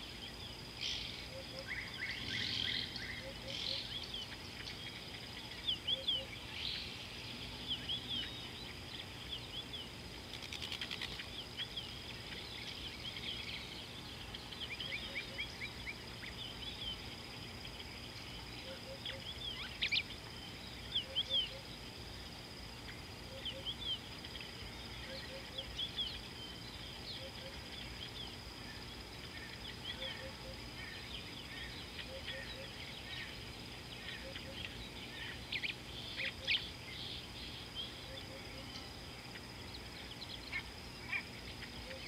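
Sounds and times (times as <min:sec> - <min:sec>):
birds chirping: 0:00.0 - 0:42.0.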